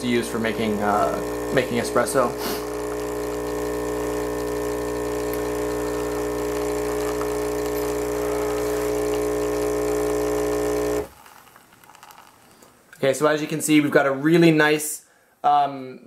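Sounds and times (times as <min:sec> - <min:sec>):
coffee machine pump humming: 0:00.0 - 0:12.4.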